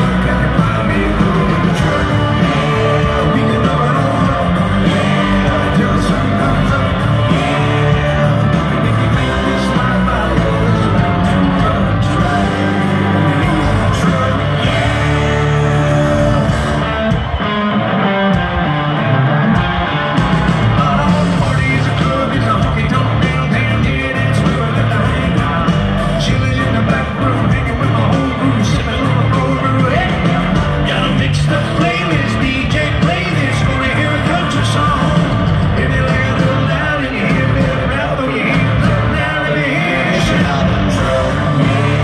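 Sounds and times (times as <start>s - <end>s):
man singing lead: 0.0s - 17.5s, 19.5s - 42.0s
electric guitar: 0.0s - 42.0s
live country-rock band: 0.0s - 42.0s.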